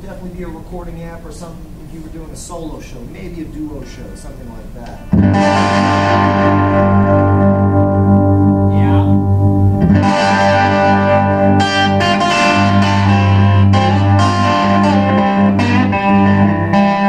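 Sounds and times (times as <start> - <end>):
electric guitar chords: 4.8 - 17.0.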